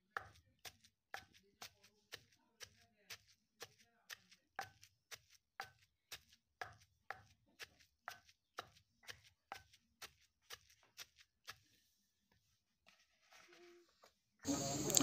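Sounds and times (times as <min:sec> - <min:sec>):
stone pestle pounding in mortar: 0:00.1 - 0:11.2.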